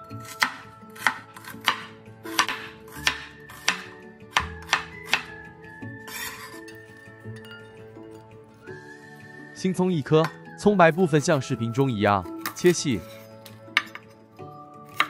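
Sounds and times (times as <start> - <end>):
cleaver chopping on cutting board: 0.2 - 5.3.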